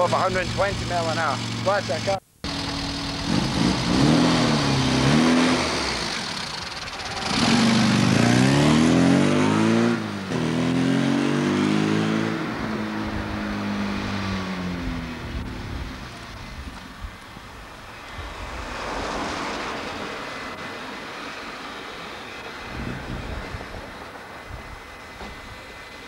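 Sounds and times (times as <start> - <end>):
car engine revving: 0.0 - 16.7.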